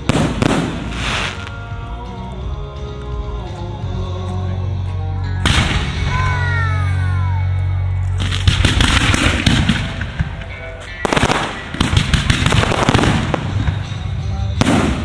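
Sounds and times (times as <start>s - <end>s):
firework fountain burst: 0.0s - 1.6s, 8.2s - 10.4s, 11.0s - 14.0s
fireworks crackling and popping: 0.0s - 1.9s, 8.0s - 15.0s
music: 0.0s - 15.0s.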